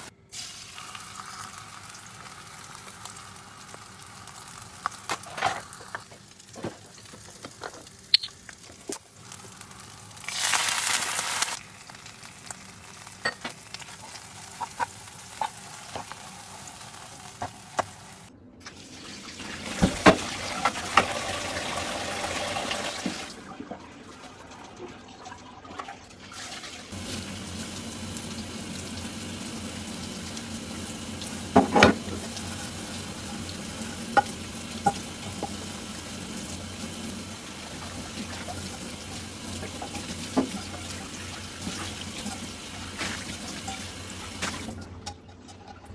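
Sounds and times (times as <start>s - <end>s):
frying pan sizzle: 0.0s - 23.3s, 26.4s - 44.9s
tap water running into sink: 19.5s - 23.8s, 31.1s - 44.8s.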